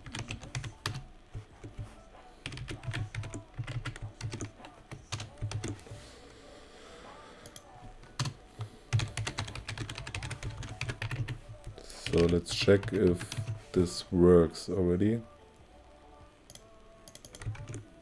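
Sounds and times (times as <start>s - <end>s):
typing on computer keyboard: 0.0s - 5.9s, 7.5s - 13.6s, 16.5s - 17.9s.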